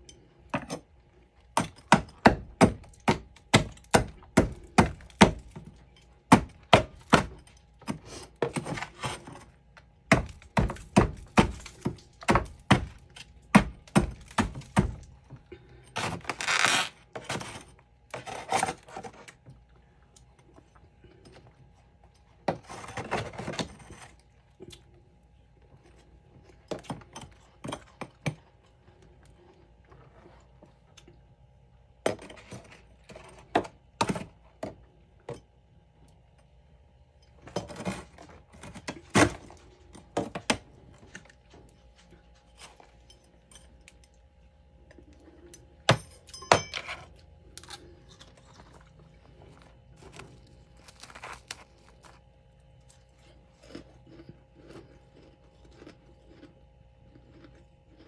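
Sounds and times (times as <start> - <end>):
frost being chewed: 47.1 - 58.0.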